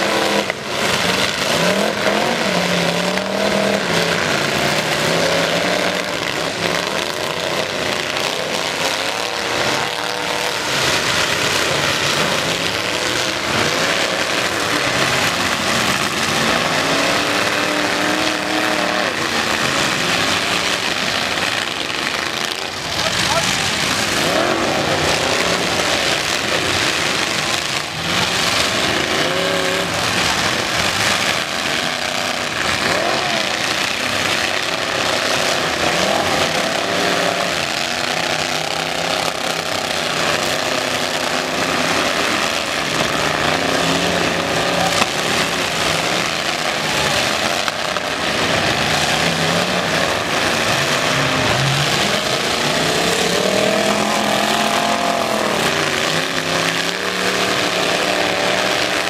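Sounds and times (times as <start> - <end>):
truck engines revving: 0.0 - 59.0.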